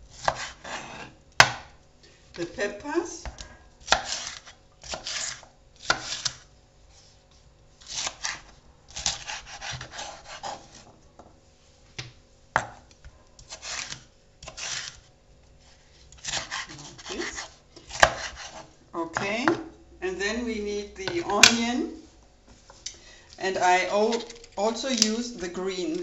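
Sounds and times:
knife slicing peppers: 0:00.1 - 0:01.6, 0:03.2 - 0:06.4, 0:07.8 - 0:10.9, 0:12.8 - 0:18.7.

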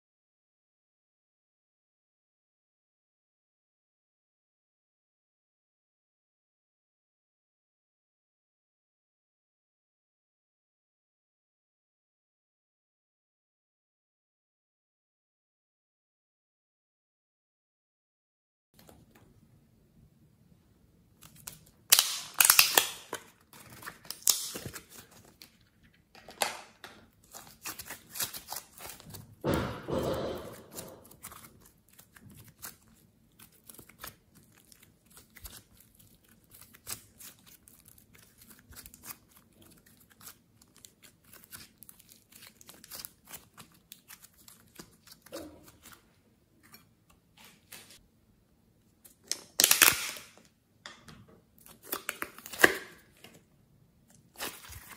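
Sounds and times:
slime squishing: 0:21.2 - 0:25.9, 0:27.1 - 0:48.0, 0:54.0 - 0:54.9
plastic tubs clicking and crinkling: 0:21.9 - 0:32.8.

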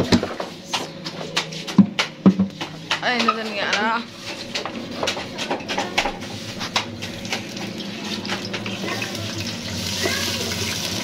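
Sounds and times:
onion sizzling in hot oil: 0:07.3 - 0:11.0.

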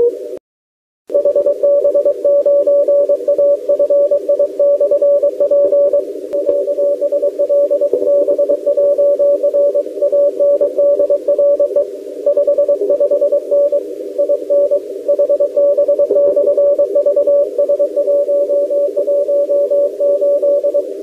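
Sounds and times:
morse code tone: 0:01.1 - 0:20.9
radio hiss: 0:01.7 - 0:21.0.

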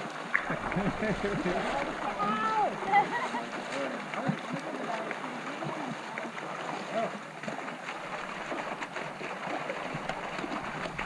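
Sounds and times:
water sloshing and splashing: 0:00.0 - 0:11.0
faint voices: 0:00.5 - 0:07.2.

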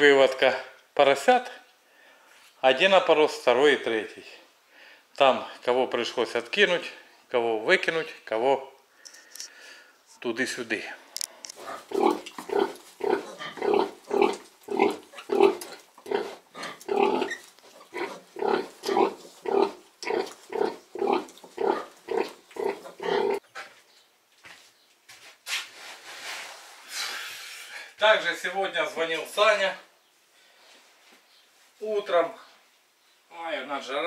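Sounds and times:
sow grunting rhythmically: 0:11.6 - 0:23.4.

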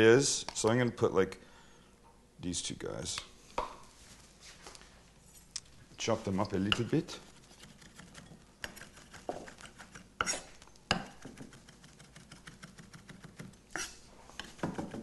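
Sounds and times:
knife chopping on wooden block: 0:07.6 - 0:13.9, 0:14.5 - 0:15.0.

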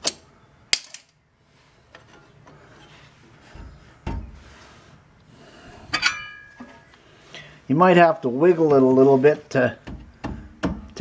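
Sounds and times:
dull thump: 0:03.5 - 0:04.5
sharp metallic clink: 0:06.0 - 0:06.6.

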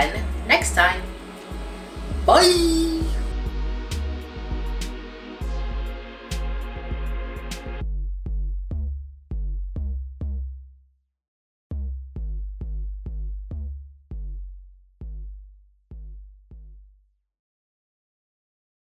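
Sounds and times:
electronic music with bass hits: 0:00.1 - 0:10.4.

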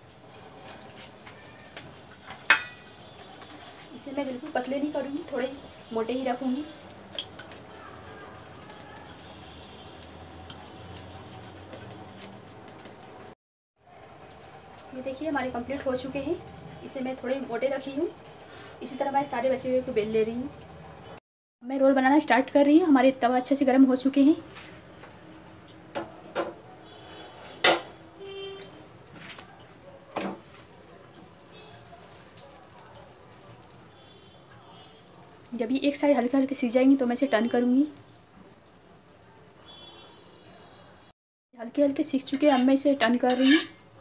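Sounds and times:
rolling pin rubbing on dough: 0:01.7 - 0:06.5, 0:07.4 - 0:09.8, 0:10.5 - 0:12.4
utensils knocking and clattering: 0:02.2 - 0:03.5, 0:07.0 - 0:07.7.

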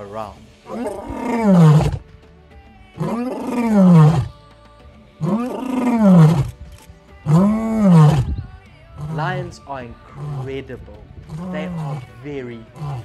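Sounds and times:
lion roaring: 0:00.7 - 0:02.0, 0:03.0 - 0:04.3, 0:05.2 - 0:06.5, 0:07.3 - 0:08.4, 0:09.0 - 0:09.5, 0:10.1 - 0:10.6, 0:11.3 - 0:12.1, 0:12.8 - 0:13.0.

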